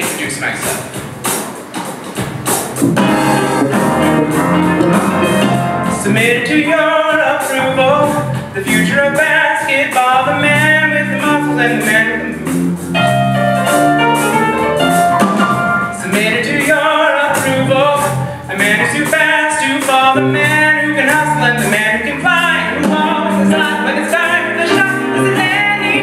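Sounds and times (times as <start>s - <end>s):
band playing with piano: 0.0s - 26.0s
man singing: 5.9s - 12.5s, 15.9s - 26.0s.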